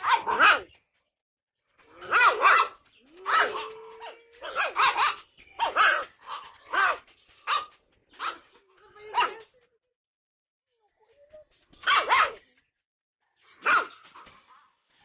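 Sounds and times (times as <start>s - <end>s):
puppy yapping: 2.0s - 8.4s.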